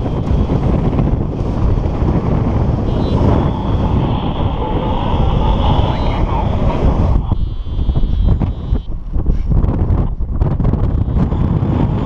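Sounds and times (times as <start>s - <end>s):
wind buffeting microphone: 0.0s - 12.0s
short high electronic beeps: 2.9s - 8.9s.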